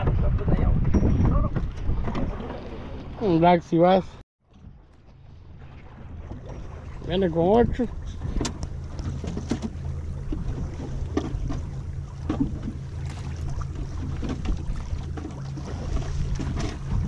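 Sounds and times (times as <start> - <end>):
waves slapping boat hull: 0.0 - 17.0
outboard motor idling: 1.8 - 17.0.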